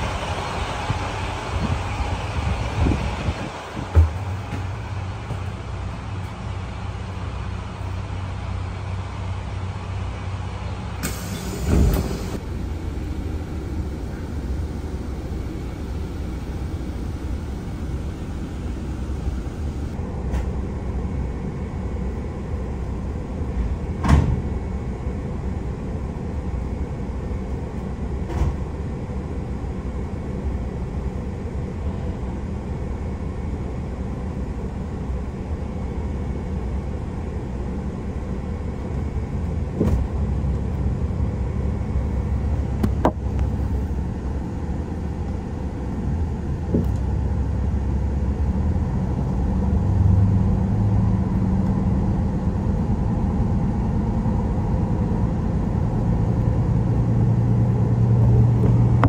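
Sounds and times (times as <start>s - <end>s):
diesel engine hum: 0.0s - 59.0s.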